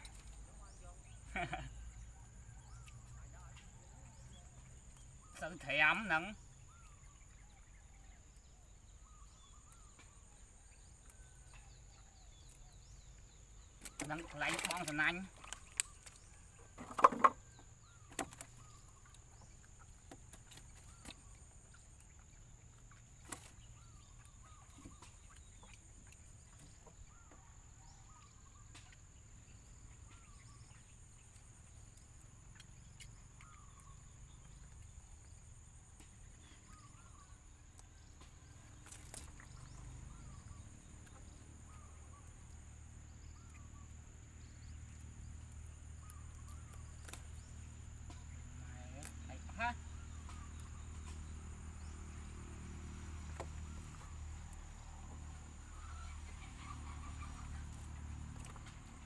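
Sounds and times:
knocks against wooden boat: 0:16.8 - 0:17.4.

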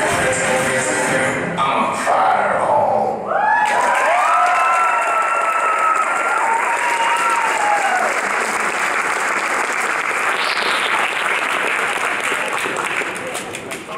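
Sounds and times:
high cheers: 0:03.3 - 0:08.6
audience applauding: 0:03.6 - 0:13.9.

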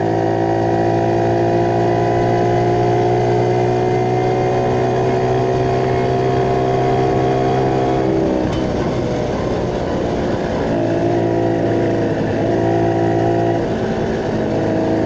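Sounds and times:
motorcycle engine running: 0:00.0 - 0:15.0.

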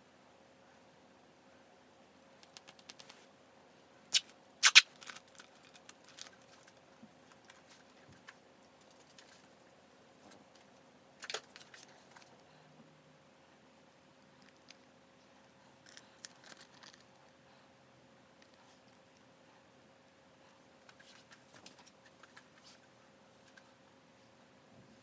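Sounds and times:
faint steady hum: 0:00.0 - 0:25.0
small objects clicking and knocking: 0:15.8 - 0:17.1.

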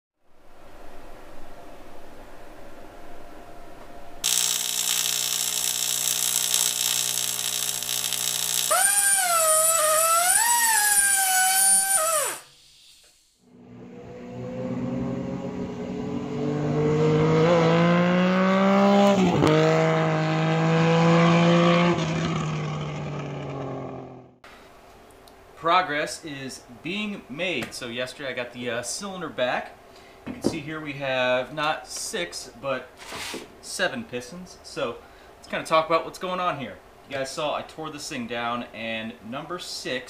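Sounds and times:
motorcycle engine revving: 0:13.5 - 0:24.4.

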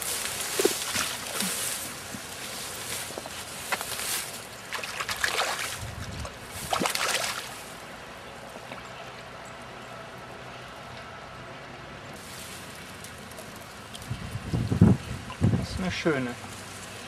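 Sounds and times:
water: 0:00.0 - 0:03.0, 0:03.6 - 0:09.6, 0:12.7 - 0:17.0
fish splashing and thrashing: 0:00.0 - 0:07.8.

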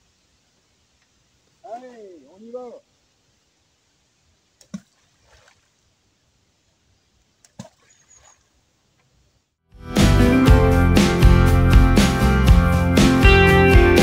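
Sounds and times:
bait plopping into water: 0:07.5 - 0:08.4.

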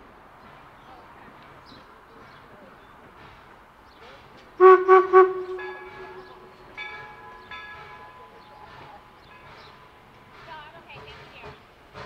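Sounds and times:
steam locomotive whistle toots: 0:04.6 - 0:06.8
locomotive bell ringing: 0:04.6 - 0:08.7.

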